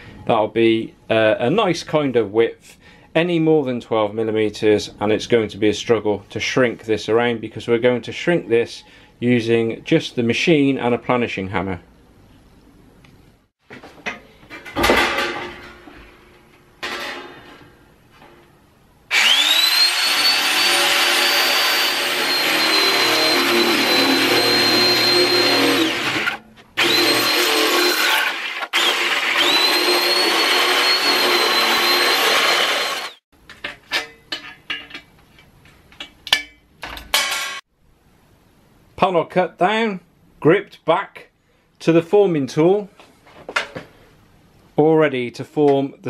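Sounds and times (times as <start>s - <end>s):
electric shear motor whine: 19.1s - 33.2s.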